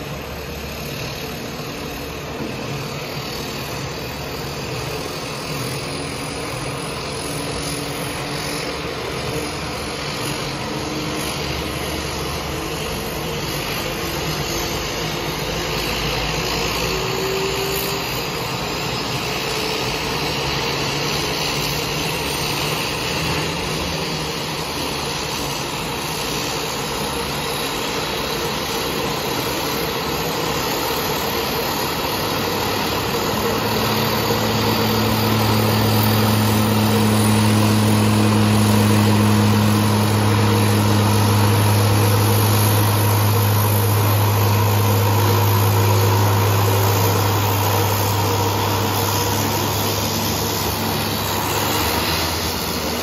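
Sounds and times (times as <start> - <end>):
floatplane engine rushing: 0.0 - 53.0
low steady drone: 0.0 - 53.0.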